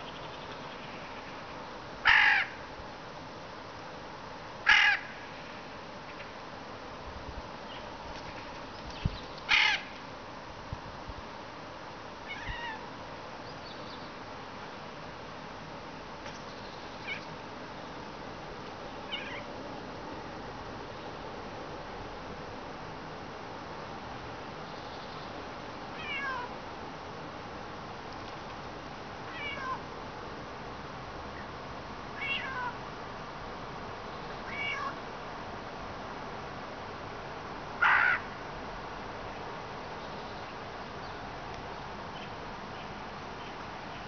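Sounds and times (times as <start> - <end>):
steady background hiss: 0.0 - 44.0
bird mimicking cat meow: 12.3 - 12.9, 19.1 - 19.5, 29.3 - 29.8, 32.2 - 32.8, 34.4 - 35.0.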